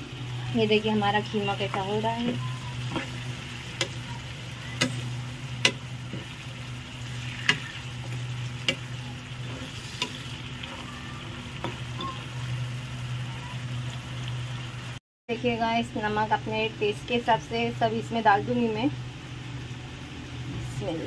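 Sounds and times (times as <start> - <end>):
meat sizzling in oil: 0.0 - 15.0.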